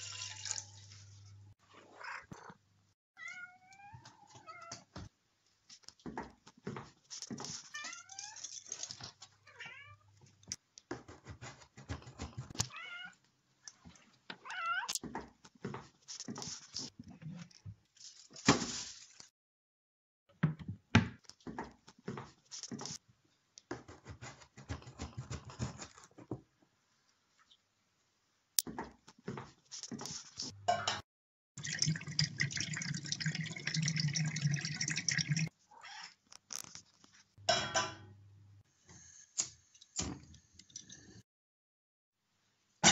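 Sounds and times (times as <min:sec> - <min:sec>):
cat meowing: 0:03.2 - 0:04.8
small hard objects clattering: 0:07.4 - 0:09.3.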